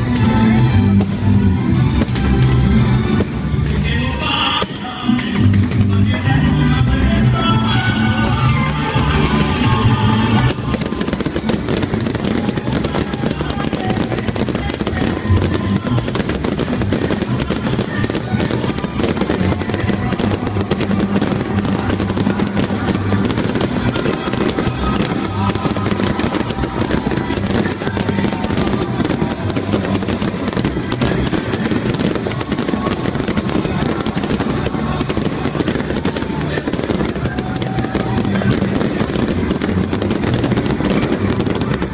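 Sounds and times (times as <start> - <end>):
fireworks crackling and popping: 0.0 - 41.9
music playing: 0.0 - 41.9.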